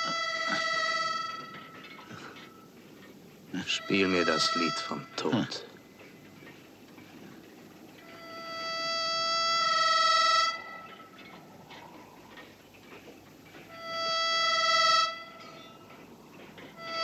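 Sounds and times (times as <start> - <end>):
harmonica wailing held notes: 0.0 - 2.6, 3.6 - 5.7, 8.1 - 10.8, 13.7 - 15.5, 16.8 - 17.0.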